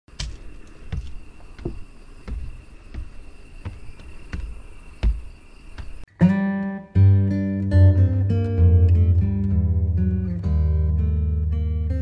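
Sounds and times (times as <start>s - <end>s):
footsteps on wooden stairs: 0.1s - 6.1s
high insect buzz: 0.1s - 6.1s.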